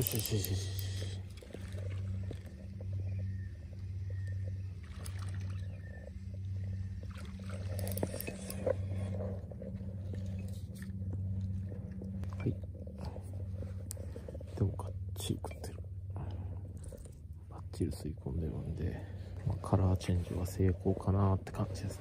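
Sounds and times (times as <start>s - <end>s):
fishing tackle clicks and knocks: 0.0s - 3.2s, 7.0s - 13.1s
low steady hum: 0.0s - 22.0s.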